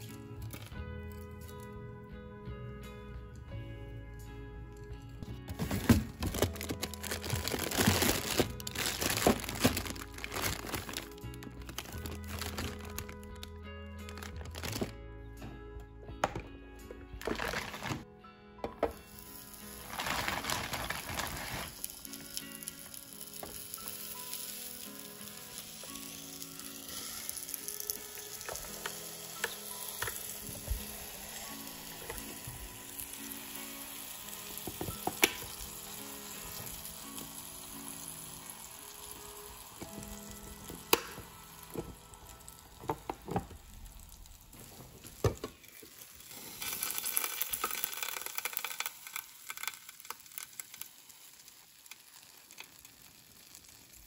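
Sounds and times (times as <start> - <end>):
dough sizzling in waffle maker: 19.0 - 54.0.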